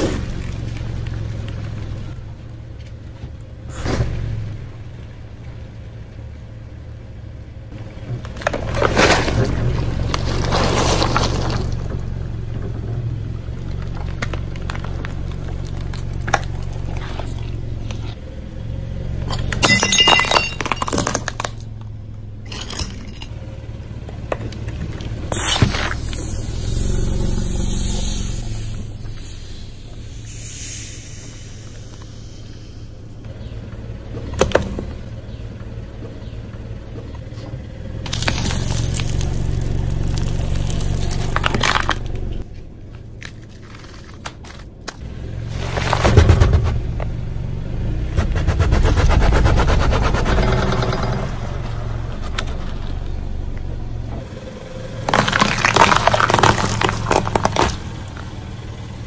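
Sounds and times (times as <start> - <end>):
vehicle engine running: 0.0 - 59.0
tyres crushing objects: 8.2 - 12.1, 19.3 - 21.9, 38.1 - 42.4, 55.0 - 58.3
glass shattering: 19.3 - 21.6, 22.5 - 23.3
sharp crack: 55.0 - 58.3.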